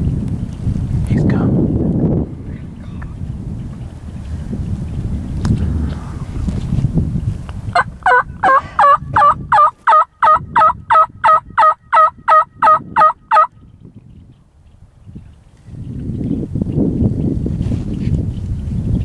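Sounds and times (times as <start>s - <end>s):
wind rumble on microphone: 0.0s - 19.0s
turkey yelps: 7.8s - 13.5s.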